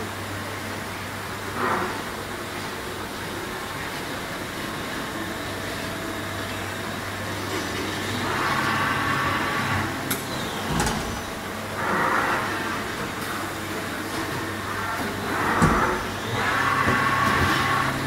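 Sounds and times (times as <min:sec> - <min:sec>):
machinery humming: 0:00.0 - 0:18.0.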